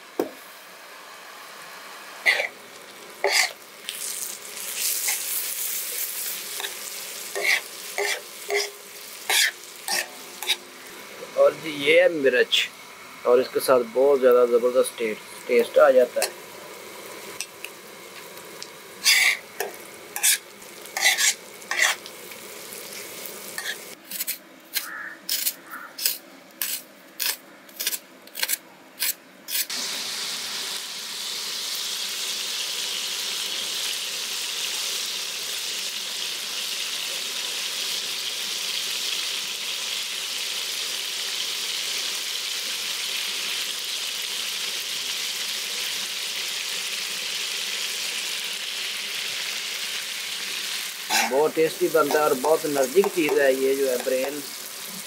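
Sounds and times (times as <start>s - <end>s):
onions sizzling on a griddle: 0.0s - 55.0s
metal spatula scraping a griddle: 2.3s - 2.6s, 3.2s - 10.6s, 19.0s - 22.1s, 22.9s - 29.7s, 51.1s - 53.4s.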